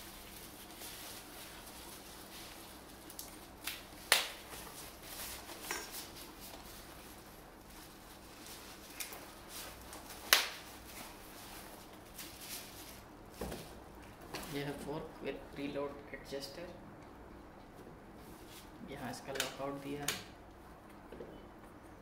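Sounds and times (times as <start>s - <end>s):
bubble wrap snapping: 0.0s - 13.1s
plastic packaging crinkling: 0.0s - 13.1s.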